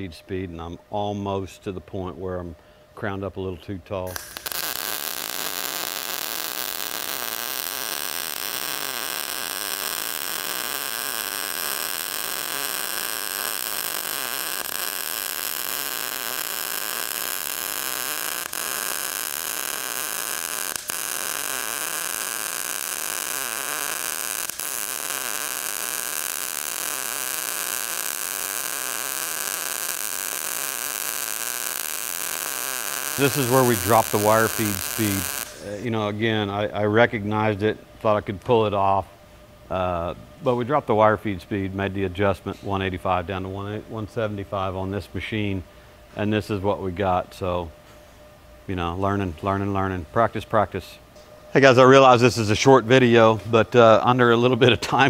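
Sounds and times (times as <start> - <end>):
welding arc hissing: 4.0 - 36.5.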